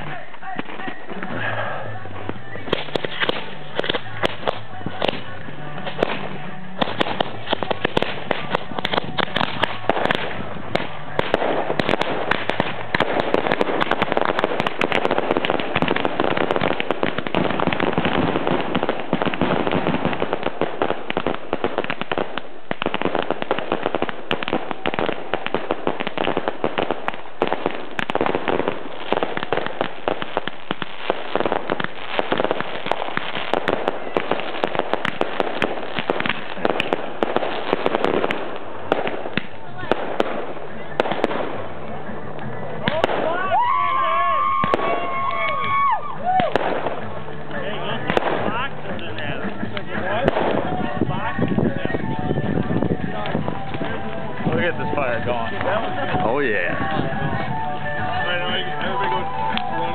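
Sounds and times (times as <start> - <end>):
fireworks crackling and banging: 0.0 - 59.9.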